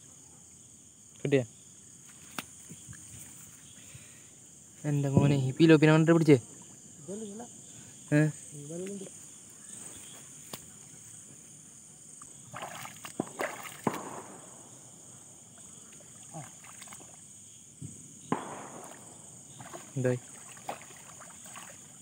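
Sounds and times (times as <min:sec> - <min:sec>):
insects chirring: 0:00.0 - 0:22.0
water sloshing and splashing: 0:12.4 - 0:14.1, 0:15.4 - 0:17.3, 0:18.8 - 0:22.0.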